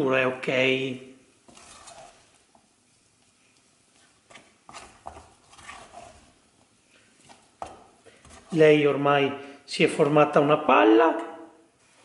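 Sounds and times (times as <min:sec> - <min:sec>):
wooden spatula knocking in saucepan: 0:07.6 - 0:08.4.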